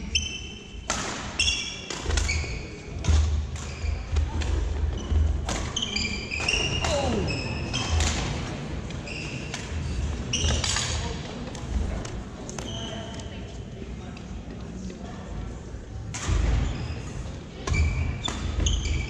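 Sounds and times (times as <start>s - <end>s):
sneakers squeaking on floor: 1.4s - 3.0s, 3.6s - 8.0s, 9.0s - 10.8s, 12.6s - 13.2s, 16.6s - 19.0s.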